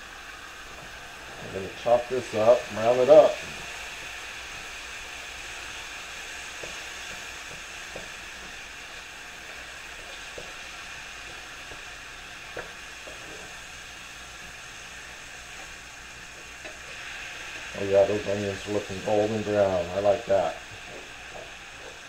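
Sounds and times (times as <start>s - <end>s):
meat sizzling in a skillet: 0.0s - 22.0s
spatula tapping a pan: 6.6s - 8.6s, 12.5s - 13.5s.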